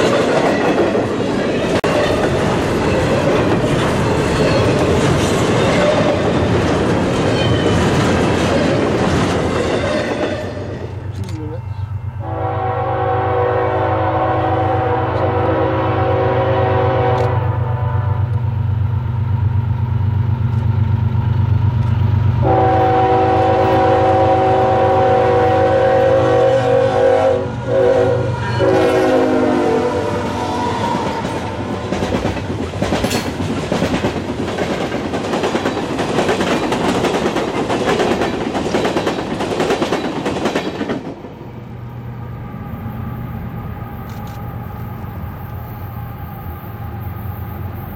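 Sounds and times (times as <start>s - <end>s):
train wheels clattering on rail: 0.0s - 11.5s, 30.2s - 41.5s
diesel locomotive drone: 0.0s - 47.9s
train horn blasts: 12.1s - 18.5s, 22.4s - 31.6s.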